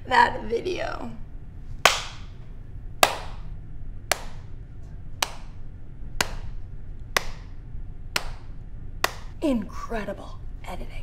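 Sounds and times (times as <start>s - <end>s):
person slow hand clapping: 1.9s - 2.3s, 3.0s - 3.4s, 4.1s - 4.5s, 5.2s - 5.6s, 6.2s - 6.5s, 7.2s - 7.5s, 8.2s - 9.3s.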